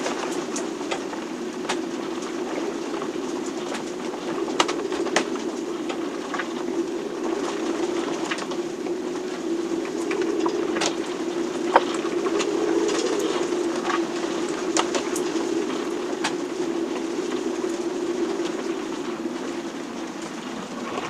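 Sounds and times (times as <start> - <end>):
low droning storm tone: 0.0 - 21.0.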